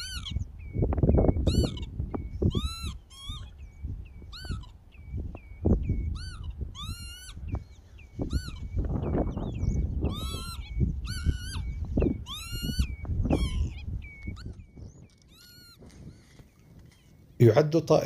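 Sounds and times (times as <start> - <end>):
microphone handling noise: 0.0 - 2.8, 7.4 - 17.2
lapwings calling: 0.0 - 17.4
wind rumble: 0.0 - 17.4.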